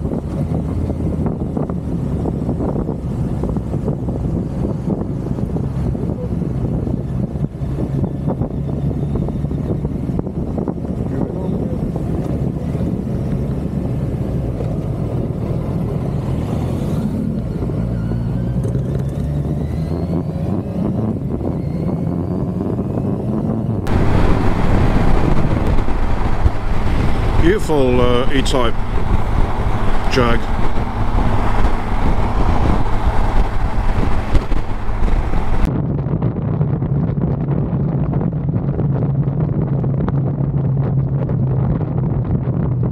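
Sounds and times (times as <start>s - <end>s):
motorcycle engine drone: 0.0s - 42.9s
wind rush and road noise: 0.0s - 42.9s
motorcycle engine running: 23.8s - 35.7s.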